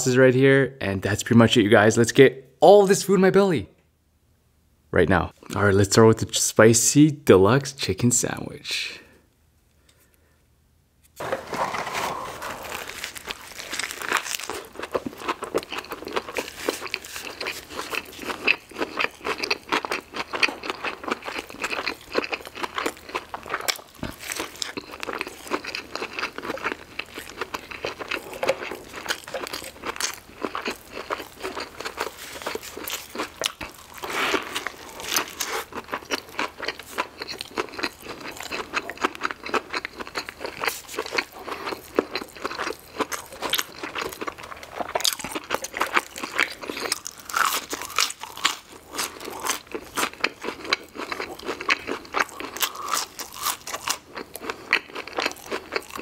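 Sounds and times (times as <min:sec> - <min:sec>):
chewing crispy chicken sandwich: 0:11.2 - 0:56.0
crunching crackles: 0:11.2 - 0:56.0.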